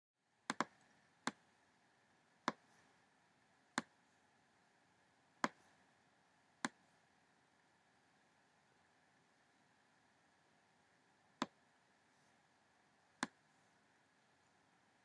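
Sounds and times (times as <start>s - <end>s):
faint steady hiss: 0.2s - 15.0s
computer mouse button clicking: 0.5s - 1.4s.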